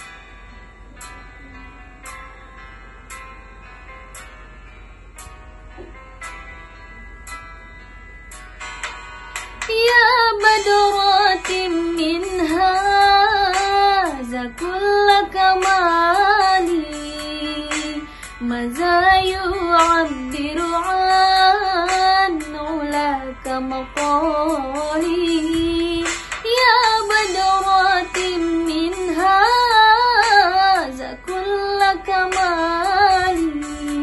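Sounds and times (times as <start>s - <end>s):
woman singing devotional song: 9.7s - 34.0s
singer breathing: 18.0s - 18.4s.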